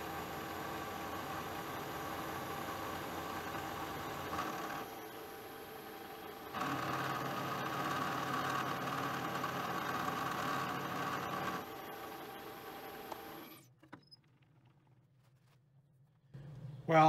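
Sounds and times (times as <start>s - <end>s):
spindle motor hum: 0.0s - 14.2s.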